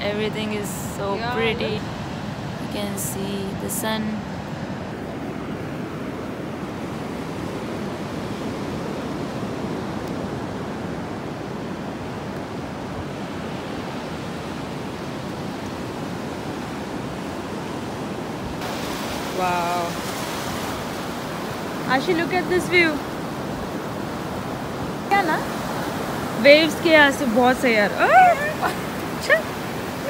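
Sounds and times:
surf breaking on a beach: 0.0s - 30.0s.

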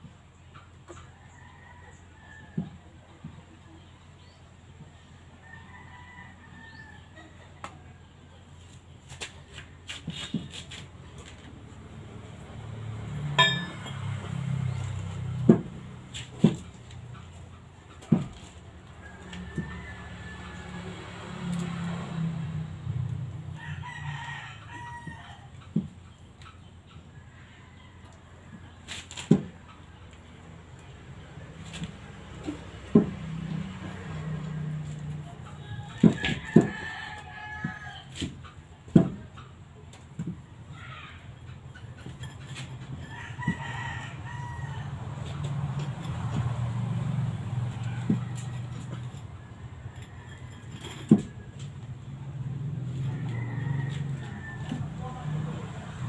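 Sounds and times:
rooster crowing: 5.4s - 7.3s, 13.4s - 14.6s, 19.0s - 22.1s, 23.5s - 25.6s, 33.5s - 38.2s, 43.0s - 45.6s, 46.9s - 56.0s.

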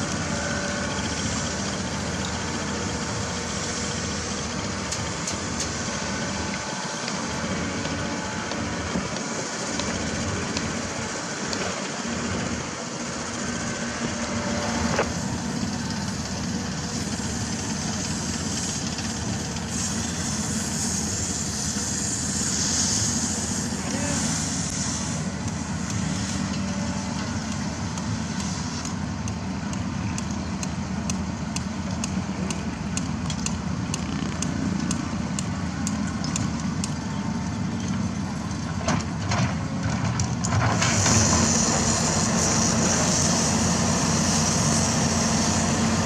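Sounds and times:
heavy machinery diesel engine running: 0.0s - 46.0s
cutting torch hissing: 0.1s - 29.2s, 40.8s - 46.0s
sharp metallic ticks: 27.5s - 37.0s.

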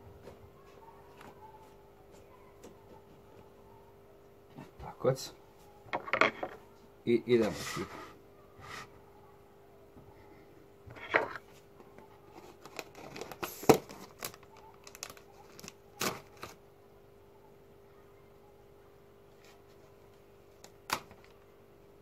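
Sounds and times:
faint steady hum: 0.0s - 22.0s
plastic bag crinkling: 12.3s - 16.6s.

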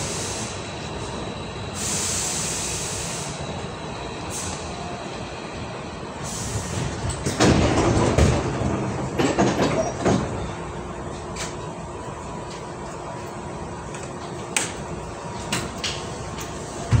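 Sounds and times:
train doors sliding open: 0.0s - 11.8s, 13.8s - 17.0s
sharp clicks and knocks: 13.9s - 14.8s.

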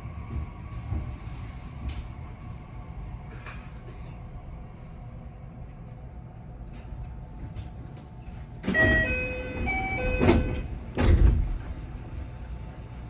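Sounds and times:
train low hum: 0.0s - 13.0s
doors shutting with heavy thuds: 8.6s - 11.7s
door chime tones: 8.7s - 10.7s.

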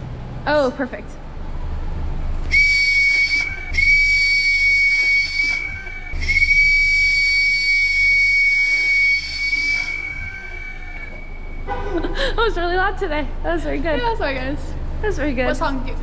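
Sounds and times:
loud plastic whistle blasts: 2.5s - 11.8s.

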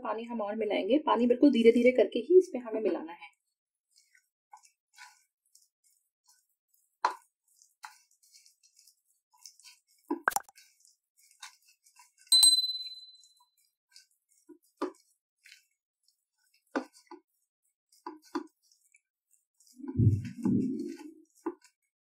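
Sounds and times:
bright ringing clink: 12.3s - 13.2s
spoon tapping ceramic bowl: 12.3s - 13.2s
dull low thumps: 19.8s - 20.9s.

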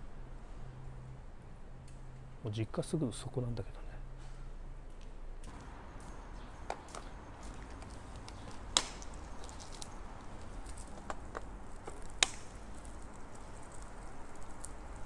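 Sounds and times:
bicycle rattling: 6.7s - 15.0s.

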